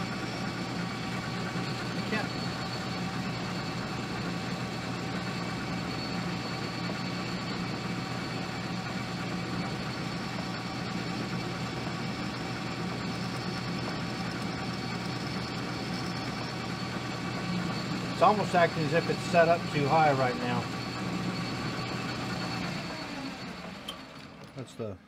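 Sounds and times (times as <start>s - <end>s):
metal lathe motor hum: 0.0s - 24.6s
faint high whine: 1.6s - 3.8s, 16.0s - 21.8s.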